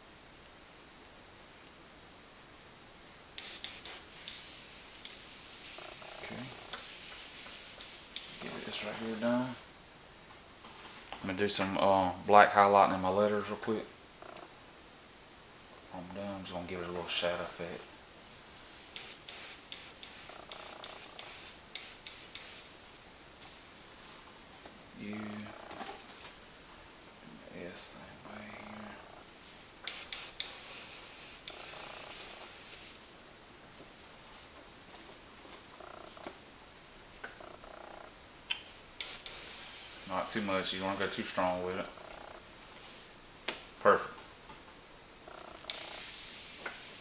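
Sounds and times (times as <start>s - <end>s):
airbrush hissing: 3.4s - 9.6s, 18.9s - 22.7s, 29.8s - 33.1s, 39.0s - 41.8s, 45.6s - 47.0s.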